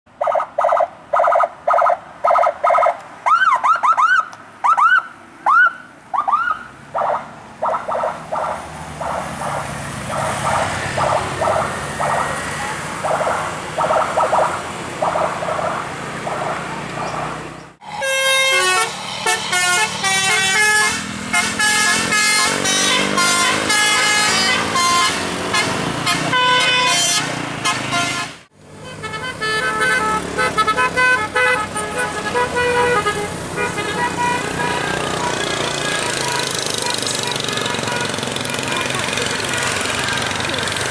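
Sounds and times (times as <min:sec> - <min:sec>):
musical car horns tooting: 0:17.8 - 0:40.6.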